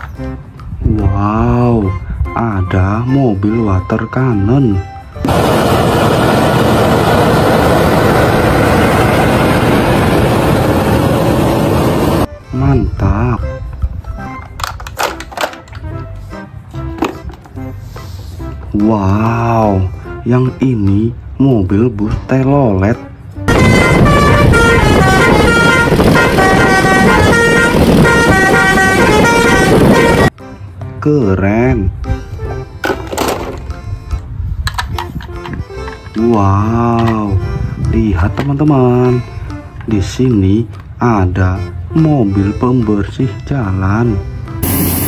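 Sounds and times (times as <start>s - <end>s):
road traffic rumble: 5.0s - 12.4s, 22.7s - 31.0s, 31.9s - 45.0s
fire engine pump running: 5.2s - 12.3s, 23.5s - 30.3s, 44.6s - 45.0s
multi-tone bus horn playing a tune: 23.5s - 30.4s
water jet spraying: 44.6s - 45.0s.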